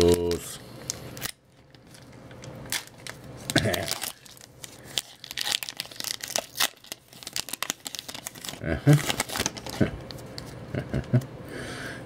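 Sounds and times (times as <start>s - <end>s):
foil wrapper tearing and crinkling: 2.7s - 9.9s.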